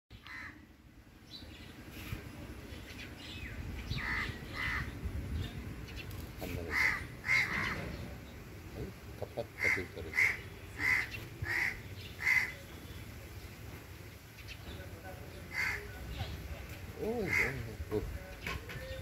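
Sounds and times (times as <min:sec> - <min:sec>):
crows cawing: 0:00.2 - 0:00.6, 0:04.0 - 0:05.0, 0:06.6 - 0:08.0, 0:09.2 - 0:12.6, 0:15.5 - 0:16.0, 0:17.0 - 0:18.0.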